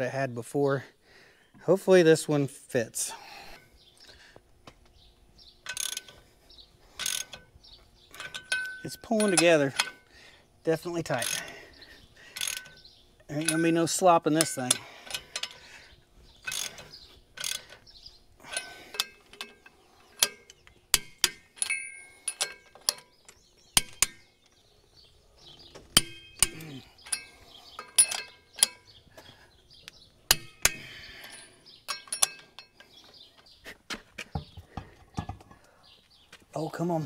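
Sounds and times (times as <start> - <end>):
ratchet wrench clicking: 5.6 - 6.2, 7.0 - 7.4, 11.2 - 11.5, 12.3 - 13.8, 16.4 - 17.9, 26.0 - 28.8.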